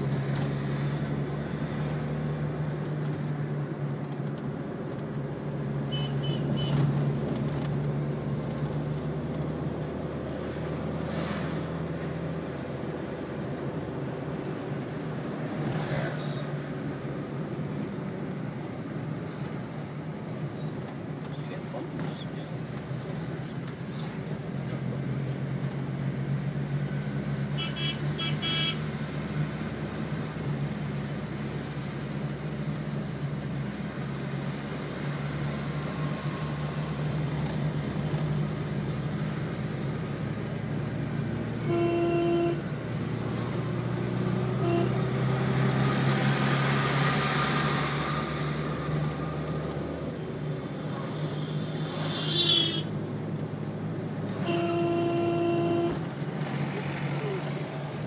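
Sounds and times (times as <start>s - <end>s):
car engine and road noise: 0.0s - 58.0s
car horn toots: 27.6s - 28.8s, 41.6s - 42.6s, 44.6s - 45.0s, 54.4s - 56.0s.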